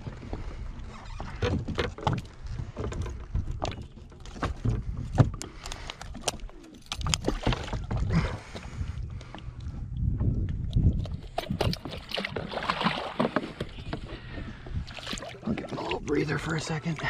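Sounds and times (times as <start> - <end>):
water sloshing in net: 11.0 - 13.6.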